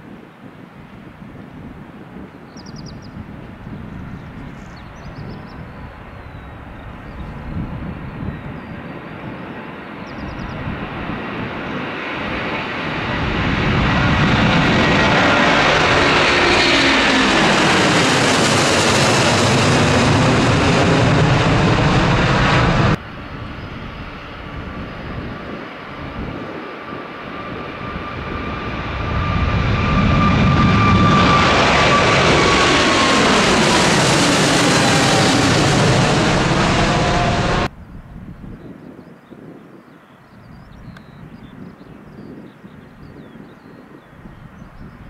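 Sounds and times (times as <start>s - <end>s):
jet engine rumble: 0.0s - 45.0s
jet airliner taking off: 0.1s - 39.6s
jet whine falling in pitch: 26.8s - 37.7s.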